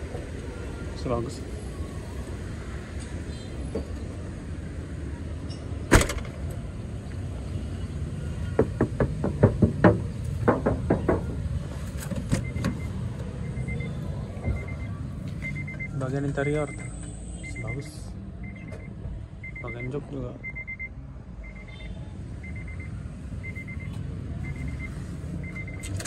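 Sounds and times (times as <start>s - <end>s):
car door thud: 5.9s - 6.4s
faint short beeps: 12.4s - 26.0s.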